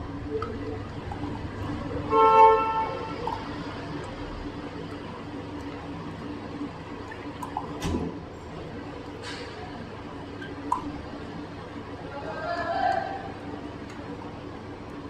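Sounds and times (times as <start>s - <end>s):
low background hum: 0.0s - 15.0s
vehicle horn honking: 2.0s - 3.3s.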